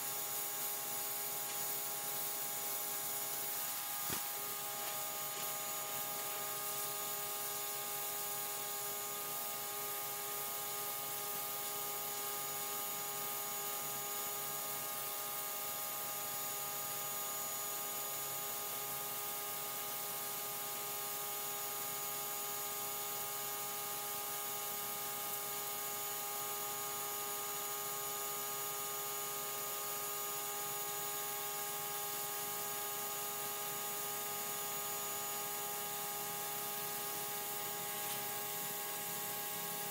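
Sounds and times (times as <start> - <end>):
water spray hissing on concrete: 0.0 - 8.7, 36.2 - 39.9
pressure washer motor humming: 0.1 - 9.4, 35.2 - 39.9.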